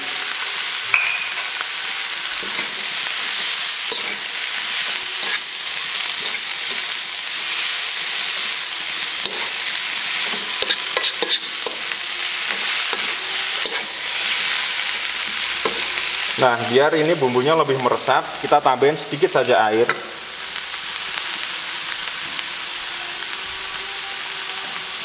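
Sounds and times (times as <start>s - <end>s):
vegetables sizzling in a wok: 0.0s - 25.0s
spatula scraping and tapping pan: 9.3s - 9.6s, 10.2s - 11.9s, 12.5s - 14.0s, 15.2s - 16.0s.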